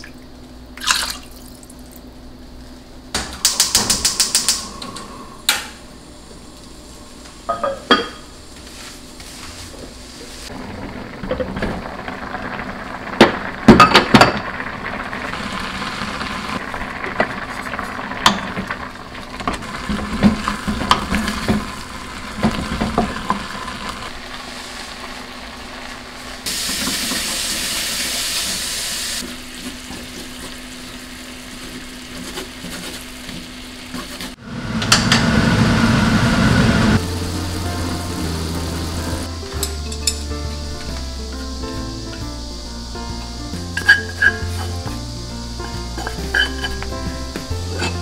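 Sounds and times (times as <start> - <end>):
rice boiling: 0.0 - 48.0
meat sizzling in frying pan: 11.2 - 48.0
wooden spatula scraping pot: 31.6 - 34.4, 43.8 - 44.9, 47.7 - 48.0
pot lid clinking: 43.8 - 44.8, 46.0 - 46.8.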